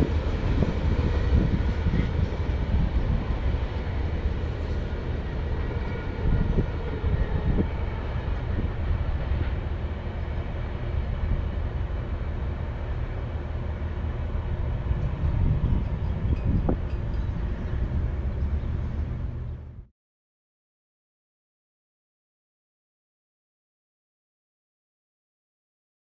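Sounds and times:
freight train rumble: 0:00.0 - 0:19.9.

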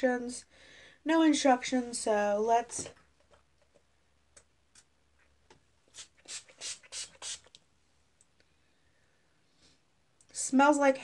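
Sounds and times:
spray bottle spritzing: 0:05.9 - 0:07.6.

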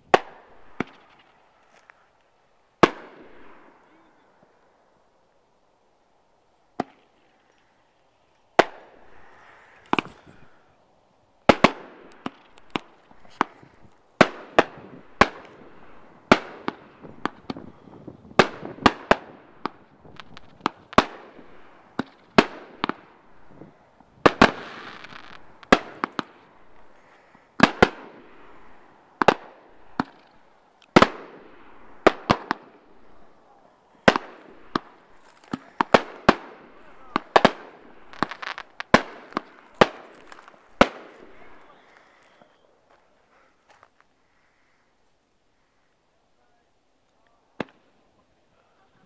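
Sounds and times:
fireworks bangs: 0:00.0 - 0:01.5, 0:02.8 - 0:04.5, 0:08.6 - 0:10.6, 0:11.5 - 0:42.6
fireworks crackling: 0:00.0 - 0:10.7, 0:11.4 - 0:44.7, 0:46.4 - 0:49.0.

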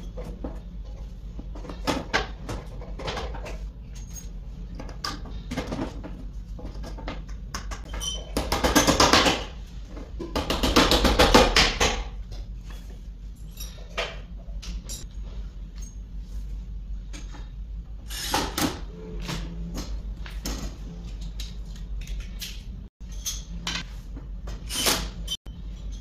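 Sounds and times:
steady low hum: 0:12.0 - 0:18.1.

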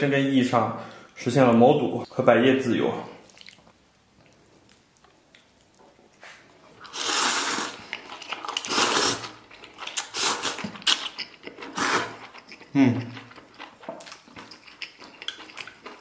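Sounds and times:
wet chewing: 0:03.3 - 0:16.0
person slurping noodles: 0:06.9 - 0:07.8, 0:08.6 - 0:09.4, 0:11.6 - 0:12.3.

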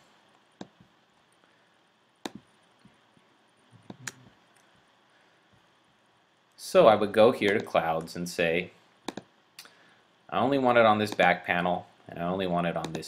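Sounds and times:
computer mouse clicks: 0:02.2 - 0:02.5, 0:03.8 - 0:04.3, 0:09.0 - 0:09.7, 0:12.8 - 0:13.0.

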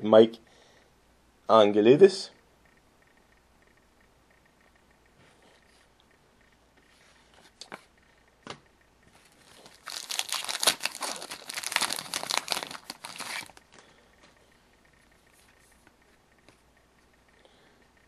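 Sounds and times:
card pack wrapper crinkling: 0:09.2 - 0:13.8.

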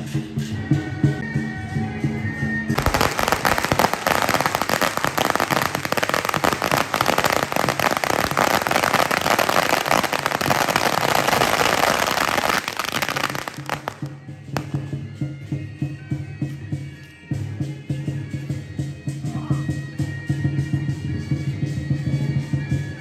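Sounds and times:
firecrackers popping: 0:02.7 - 0:15.0.

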